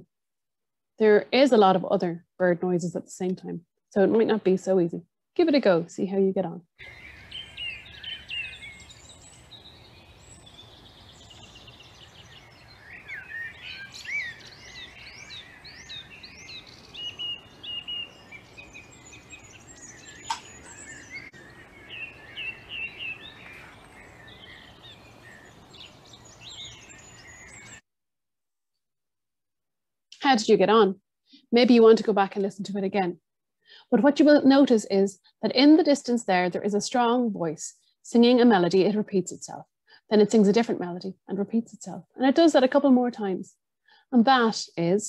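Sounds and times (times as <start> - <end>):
songbirds chirping: 1.1 - 27.8
distant thrush singing: 6.8 - 27.8
sharp click: 20.2 - 20.5.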